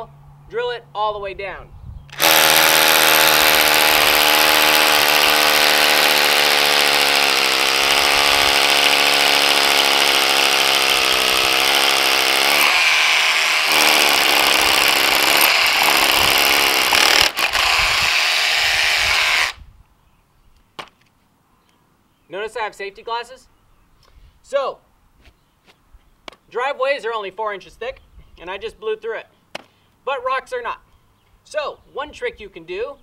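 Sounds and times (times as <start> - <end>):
hammer drill boring into concrete: 2.1 - 19.6.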